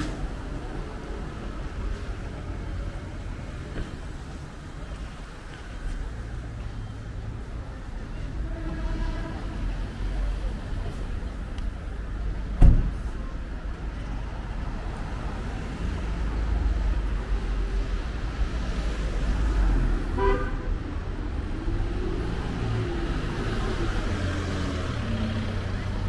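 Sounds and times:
road traffic rumbling: 0.0 - 26.0
sharp thump: 12.6 - 13.0
car horn toot: 20.2 - 20.8.

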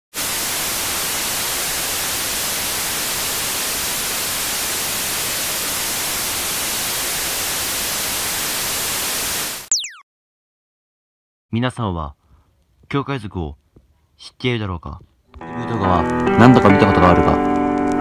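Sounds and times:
television static hiss: 0.2 - 9.7
quick falling whistle: 9.7 - 10.0.

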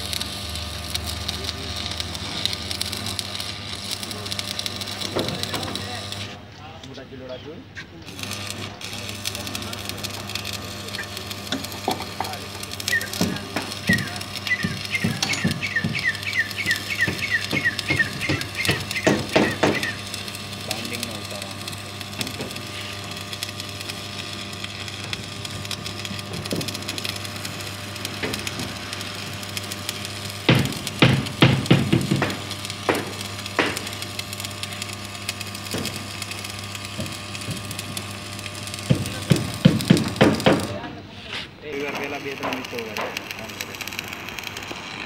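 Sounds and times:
welding arc crackling and sizzling: 0.0 - 45.0
bird chirping: 13.9 - 20.0
sharp knocks: 30.5 - 33.8.

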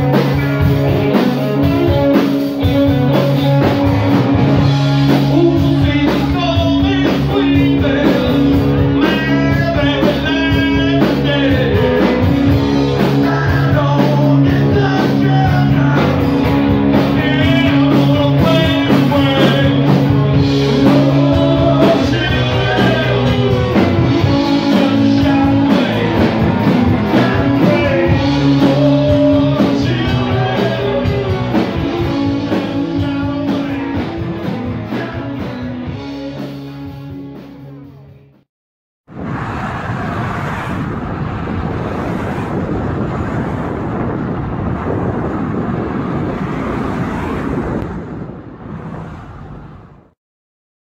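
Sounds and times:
rock band music with singer: 0.0 - 38.4.

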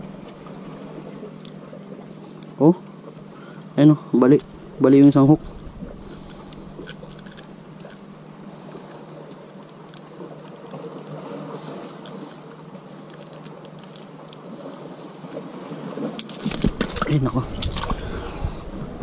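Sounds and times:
sea noise: 0.0 - 19.0
wind on microphone: 16.4 - 19.0.

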